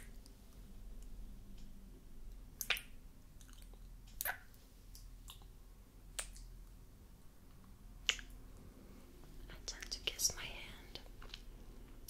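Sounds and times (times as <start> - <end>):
wet mouth clicks and lip smacks: 2.6 - 5.5, 6.1 - 6.5, 8.0 - 8.4.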